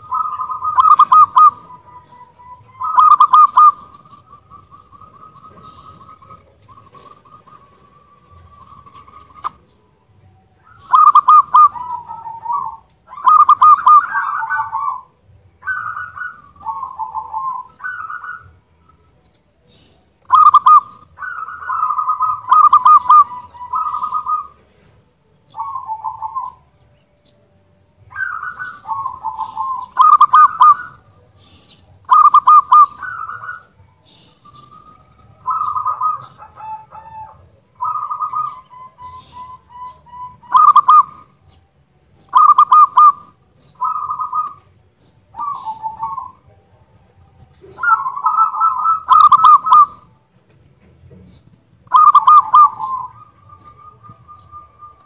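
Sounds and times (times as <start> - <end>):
dove cooing: 0.0 - 26.7, 28.0 - 41.5, 42.2 - 50.4, 51.1 - 55.0.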